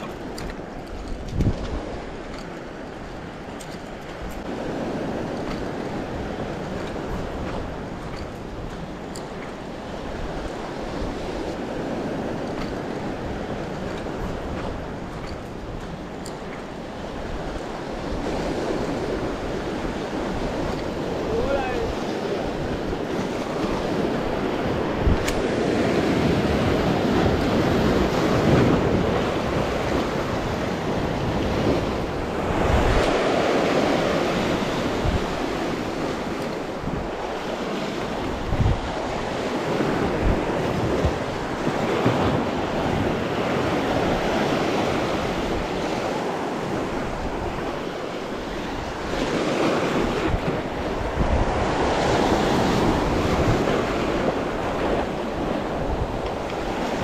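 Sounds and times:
wind buffeting microphone: 0:00.0 - 0:57.0
surf breaking over rocks: 0:17.4 - 0:57.0.

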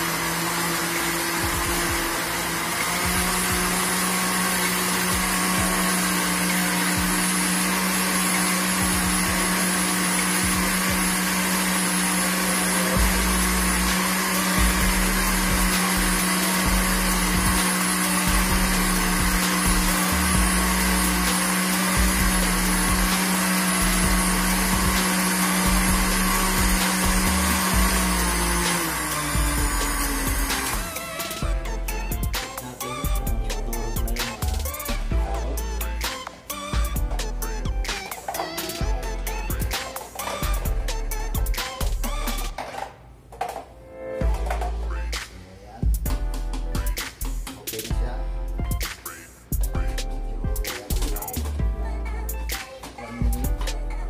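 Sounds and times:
electric blender running: 0:00.0 - 0:42.9.

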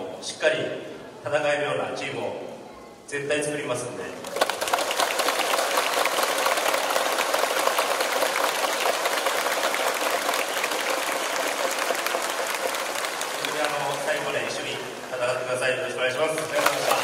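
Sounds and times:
crowd applauding: 0:04.2 - 0:15.2, 0:16.0 - 0:17.0.

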